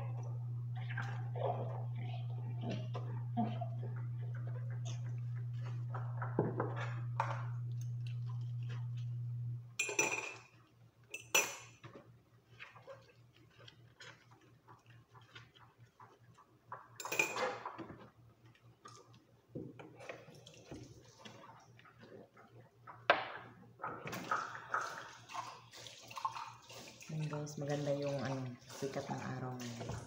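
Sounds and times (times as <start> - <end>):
low hum: 0.0 - 9.8
dishes clattering in sink: 9.8 - 12.0, 16.8 - 18.1.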